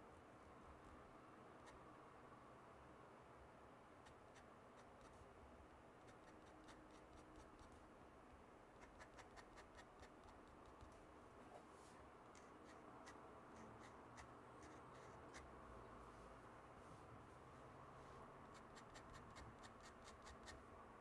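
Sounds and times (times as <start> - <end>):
pen nib scratching on paper: 4.0 - 5.2, 6.0 - 7.8, 8.8 - 11.0, 12.3 - 15.5, 18.4 - 20.6.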